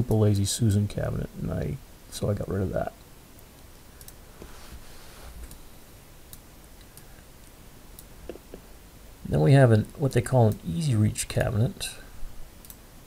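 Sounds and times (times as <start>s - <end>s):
computer mouse clicks: 4.0s - 4.2s, 12.6s - 12.8s.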